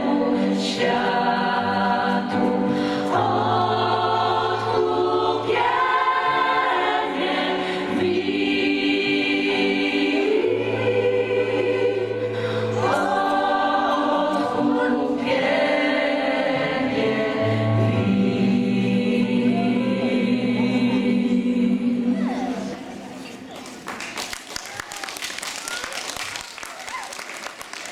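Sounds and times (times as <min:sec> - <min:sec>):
keyboard accompaniment: 0:00.0 - 0:22.7
gospel choir singing: 0:00.0 - 0:23.2.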